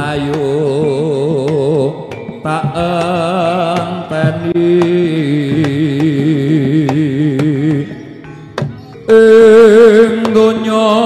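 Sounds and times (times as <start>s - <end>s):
wavering melody with vibrato: 6.0s - 11.0s.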